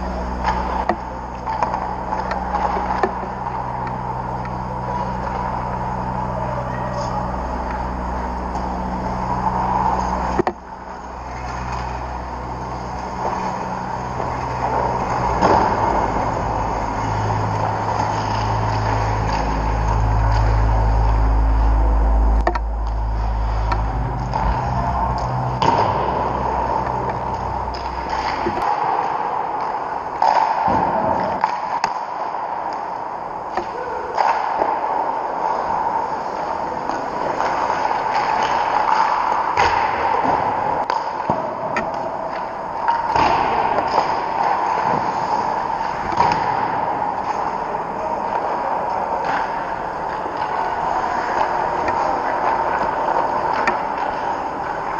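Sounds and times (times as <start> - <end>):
steady hum: 0.0 - 54.9
puck or stick clack: 0.4 - 4.6, 9.3 - 10.6, 14.2 - 16.3, 25.2 - 34.9, 36.2 - 54.9.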